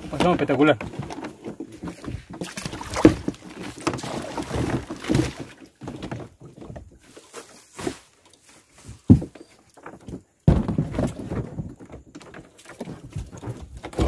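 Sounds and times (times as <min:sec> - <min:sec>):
paddle strokes splashing: 0:00.0 - 0:08.8.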